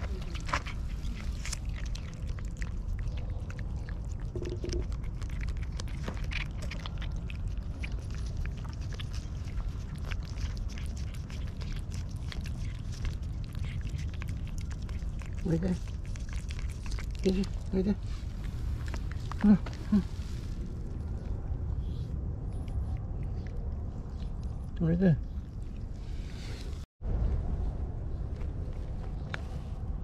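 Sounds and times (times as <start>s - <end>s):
steady low rumble: 0.0s - 30.0s
cats licking wet smacking: 0.1s - 17.5s.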